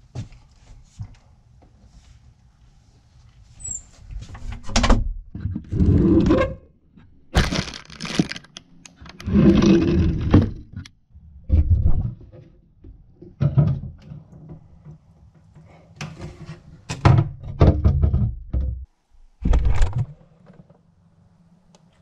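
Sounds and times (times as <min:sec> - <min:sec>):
cabinet doors opening and shutting: 0:04.4 - 0:06.6, 0:09.0 - 0:10.9, 0:16.0 - 0:18.8, 0:19.4 - 0:20.3
items knocking and rattling inside: 0:07.4 - 0:10.8, 0:17.0 - 0:20.8.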